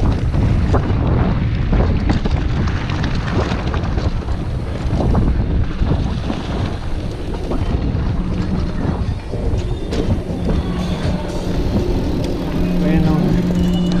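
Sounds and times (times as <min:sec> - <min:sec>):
bike knocks and rattles: 0:00.0 - 0:14.0
wind rush on microphone: 0:00.0 - 0:14.0.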